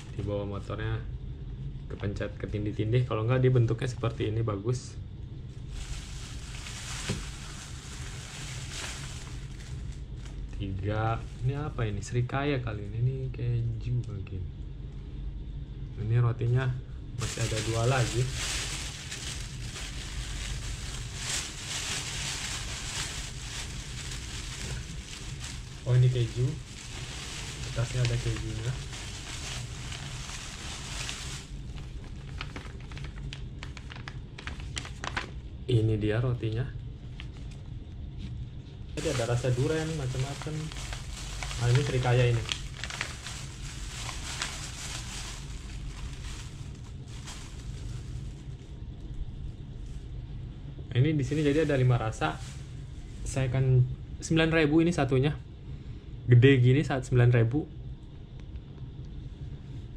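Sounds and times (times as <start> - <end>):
plastic bag rustling: 0.0 - 0.3, 5.6 - 11.8, 17.2 - 35.4, 39.0 - 48.7, 51.2 - 53.4
low background hum: 0.0 - 59.9.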